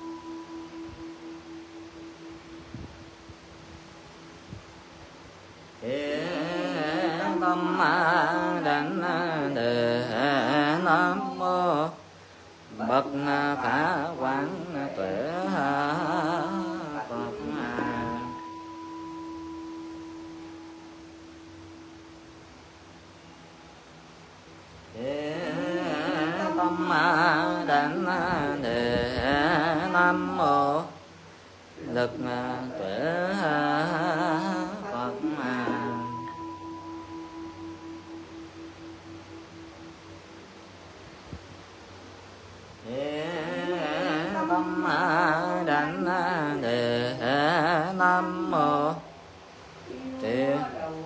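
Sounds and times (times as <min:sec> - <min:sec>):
person chanting: 0:00.0 - 0:02.6, 0:05.8 - 0:12.1, 0:12.7 - 0:22.3, 0:24.9 - 0:31.1, 0:31.8 - 0:40.5, 0:42.8 - 0:49.2, 0:49.8 - 0:51.0.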